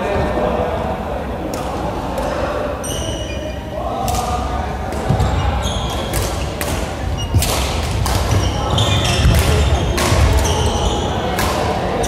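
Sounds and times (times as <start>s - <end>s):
shoes squeaking on floor: 2.8s - 3.6s, 5.0s - 11.4s
racket hitting shuttlecock: 5.9s - 10.6s.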